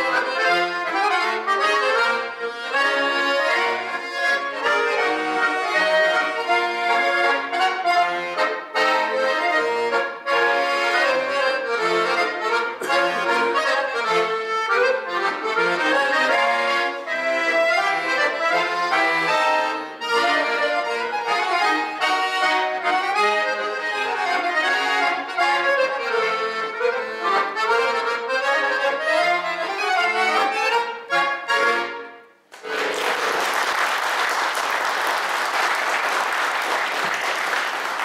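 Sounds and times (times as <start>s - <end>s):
accordions playing lively tune: 0.0s - 38.0s
audience applauding: 32.5s - 38.0s.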